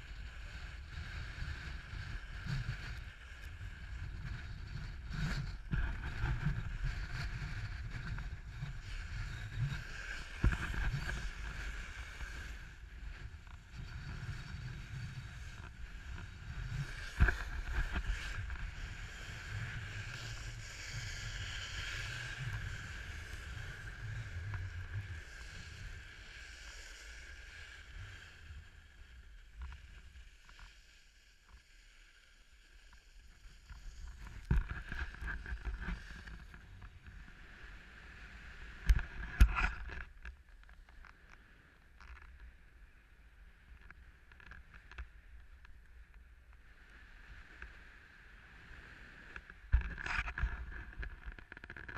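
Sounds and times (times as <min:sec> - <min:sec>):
snowboard scraping on snow: 0:00.0 - 0:29.1, 0:32.4 - 0:39.7.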